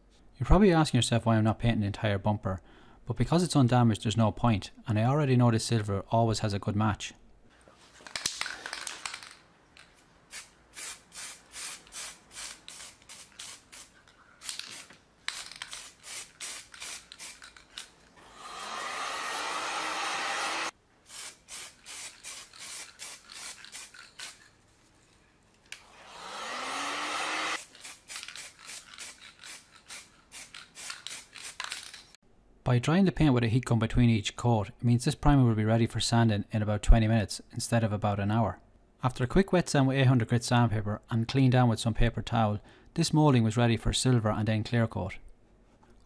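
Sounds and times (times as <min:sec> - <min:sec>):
aerosol can ball rattling: 0:08.0 - 0:18.2, 0:21.2 - 0:24.6, 0:27.6 - 0:32.2
aerosol spray rushing: 0:18.2 - 0:24.5, 0:25.8 - 0:31.6.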